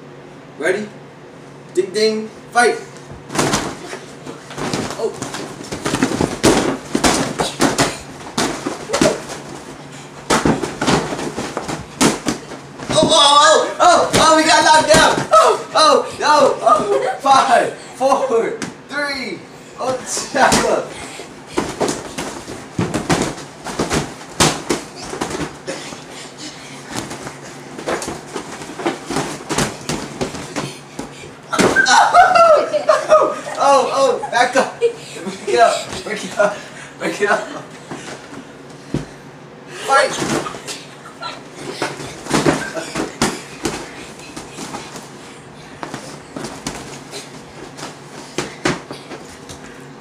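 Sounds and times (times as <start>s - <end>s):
inflatable boxing gloves thumping: 3.2s - 15.6s, 20.4s - 20.9s, 21.5s - 26.1s, 26.8s - 32.1s, 39.9s - 40.8s, 41.6s - 49.6s.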